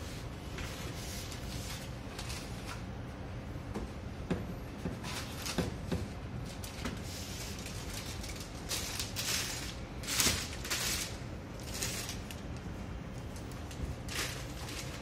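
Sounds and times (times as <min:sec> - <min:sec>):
plastic bag crinkling: 0:07.4 - 0:12.6.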